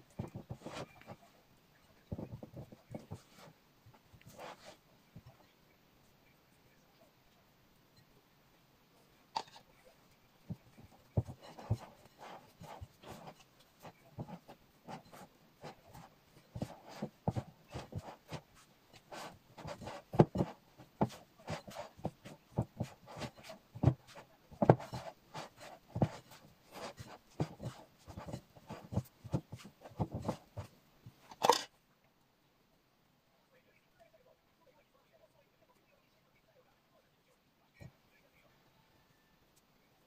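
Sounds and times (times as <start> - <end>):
hands kneading dough: 0.0 - 1.3, 10.5 - 31.2.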